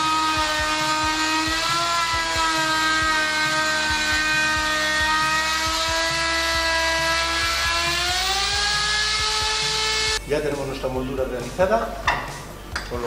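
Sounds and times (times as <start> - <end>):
electric router cutting wood: 0.0 - 10.2.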